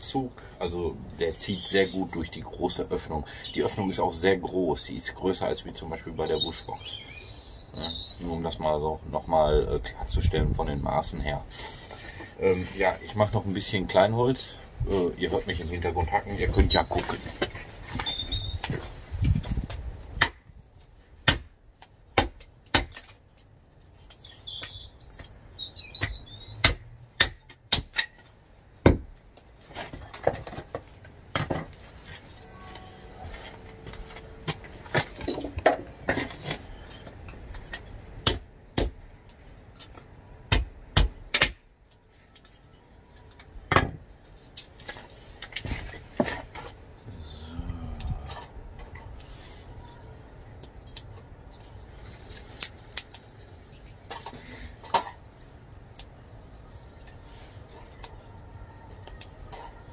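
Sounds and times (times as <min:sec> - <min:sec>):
bird chirps: 0:01.0 - 0:03.9, 0:06.0 - 0:08.3, 0:15.7 - 0:18.7, 0:24.1 - 0:27.2
blade chopping wood: 0:22.2 - 0:23.1, 0:26.0 - 0:28.2, 0:28.8 - 0:29.1.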